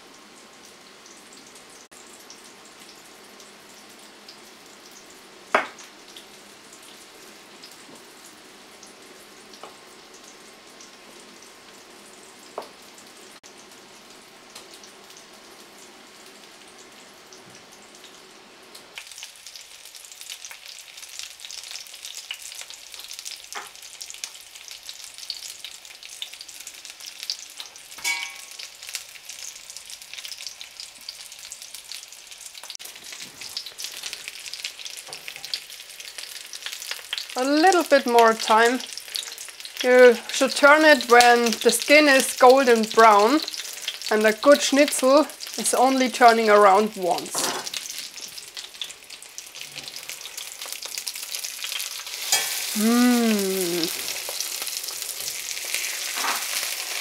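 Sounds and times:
schnitzel sizzling in a pan: 0.0 - 57.0
ringing clink: 28.0 - 28.5.

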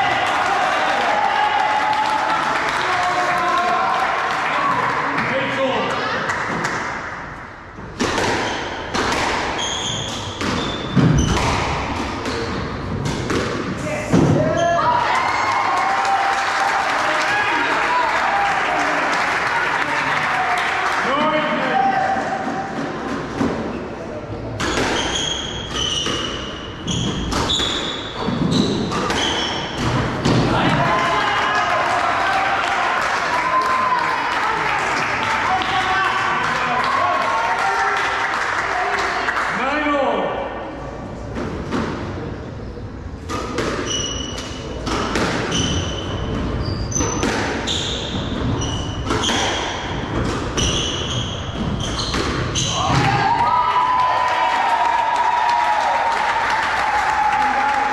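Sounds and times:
squash ball smacking: 7.9 - 14.5, 24.5 - 30.8, 43.2 - 53.2
shoes squeaking on wooden floor: 9.6 - 11.5, 24.7 - 29.8, 45.5 - 52.8.

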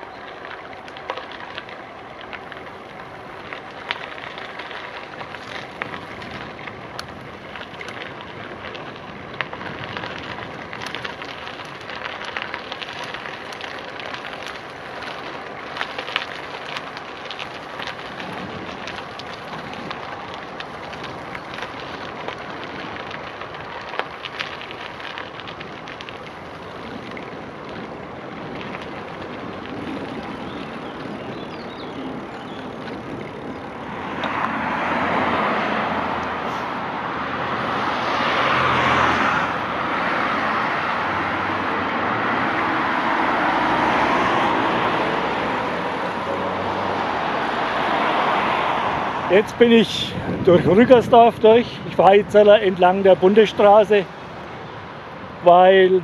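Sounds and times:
bicycle tyres rolling on gravel: 0.0 - 56.0.

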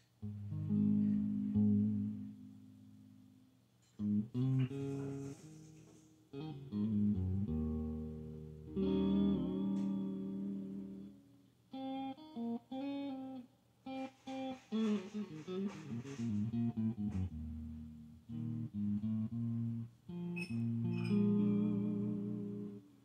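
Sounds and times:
clean electric guitar: 0.0 - 23.0
looped bass line: 0.2 - 2.7, 16.0 - 22.8.

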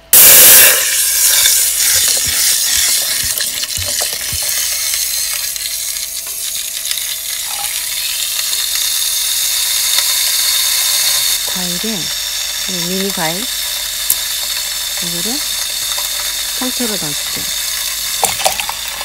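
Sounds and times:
wine sizzling in hot pot: 0.0 - 19.0.

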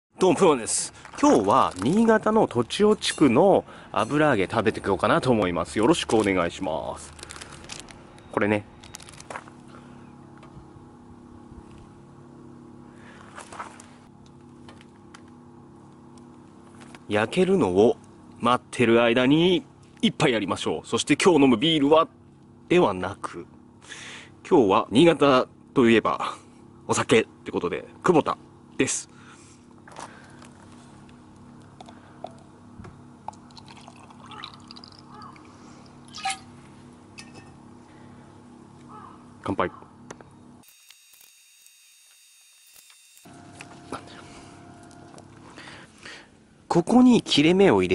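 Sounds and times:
steady low hum: 0.1 - 47.9
liquid gurgling into cup: 33.3 - 35.5.

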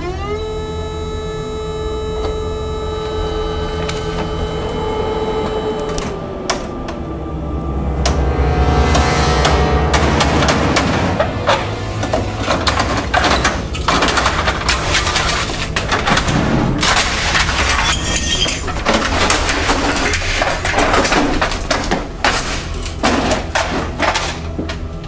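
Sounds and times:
loose parts clattering: 10.2 - 25.0
plastic housing banging and cracking: 10.2 - 25.0.

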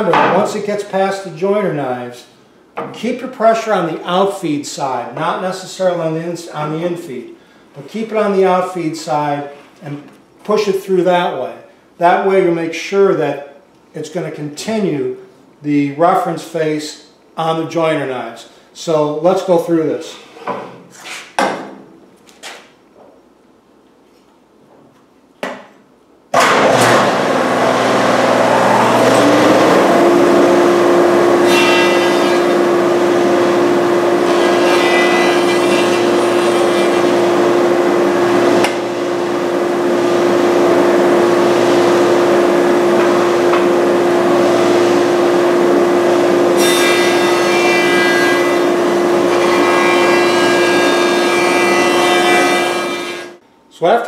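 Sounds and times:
jointer motor whine: 26.4 - 53.3
jointer cutting wood: 26.4 - 53.4.

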